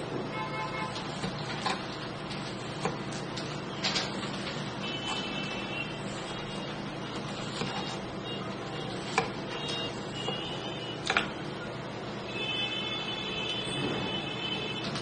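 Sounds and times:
knife cutting cucumber: 7.2s - 8.0s.

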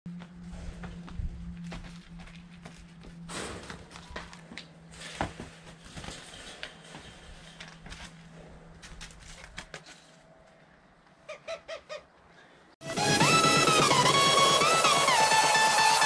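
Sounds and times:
low steady hum: 0.1s - 9.2s.

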